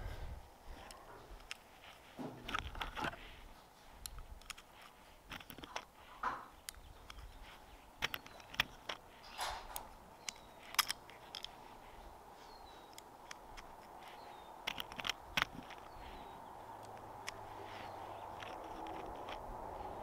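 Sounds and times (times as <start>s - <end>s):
light wind: 0.0s - 20.0s
bird chirping: 6.2s - 20.0s.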